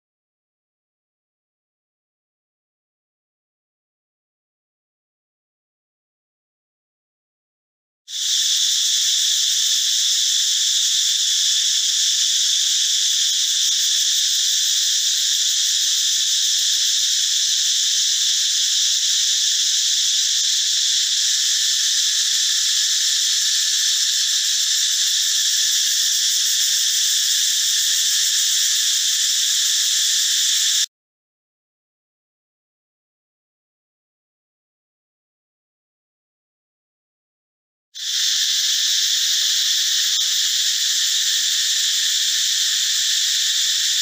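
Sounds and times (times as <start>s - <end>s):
cicadas buzzing: 8.1s - 30.9s, 38.0s - 44.0s.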